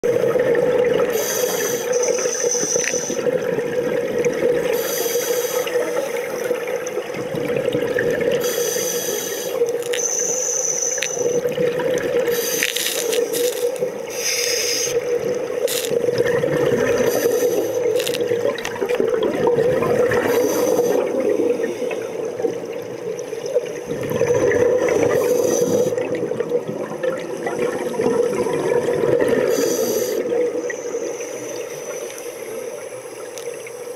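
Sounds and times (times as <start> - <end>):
scuba regulator breathing: 1.1 - 3.2, 4.7 - 6.4, 8.4 - 11.4, 12.2 - 15.1, 16.9 - 18.2, 20.2 - 22.2, 25.0 - 26.0, 29.4 - 30.4.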